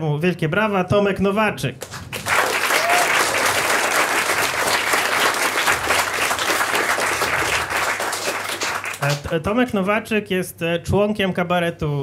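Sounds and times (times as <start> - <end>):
audience applause: 1.8 - 9.3.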